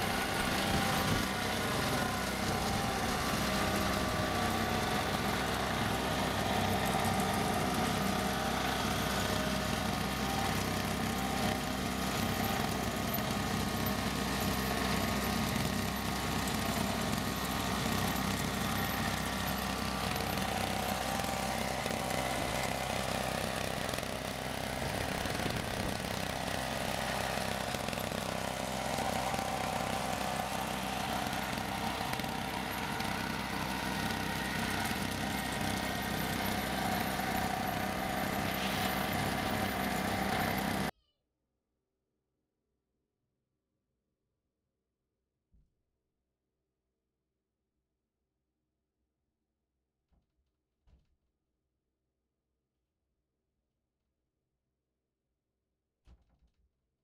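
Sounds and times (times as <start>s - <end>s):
snow blower engine running: 0.0s - 40.9s.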